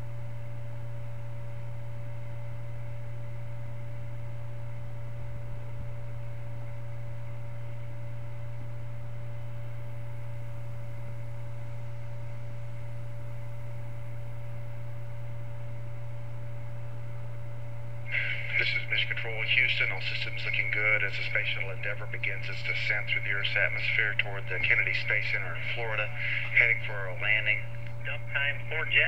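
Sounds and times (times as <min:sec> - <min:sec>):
low electrical hum: 0:00.0 - 0:29.0
thin steady whine: 0:00.0 - 0:29.0.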